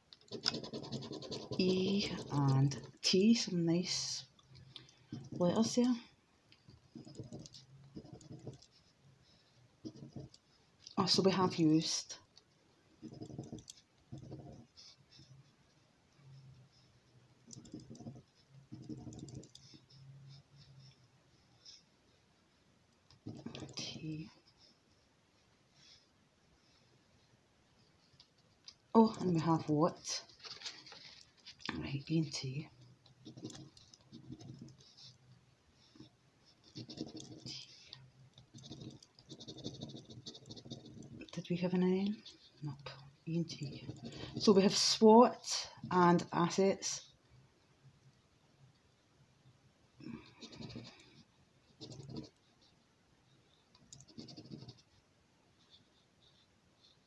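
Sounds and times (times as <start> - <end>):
faint low hum: 0.0 - 57.0
coin scratching scratchcard: 0.3 - 2.8, 38.5 - 41.2, 54.0 - 54.8.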